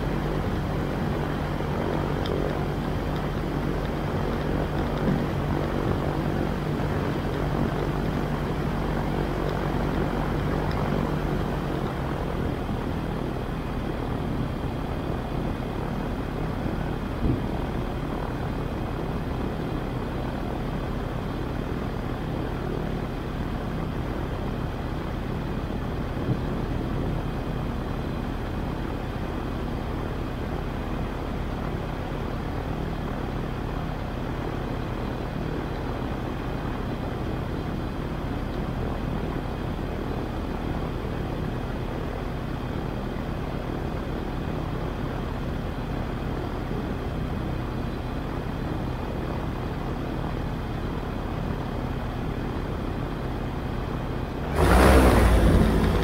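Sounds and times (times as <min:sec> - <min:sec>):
propeller engine idling: 0:00.0 - 0:56.0.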